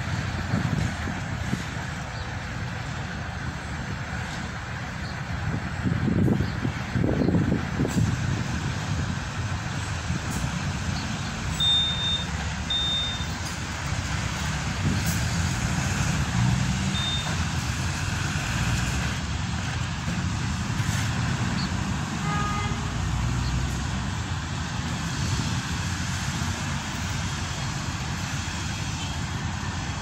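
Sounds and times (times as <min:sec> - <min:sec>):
traffic rumble: 0:00.0 - 0:30.0
horn-like tone: 0:11.6 - 0:13.3
short high beeps: 0:11.6 - 0:13.4, 0:16.9 - 0:17.4.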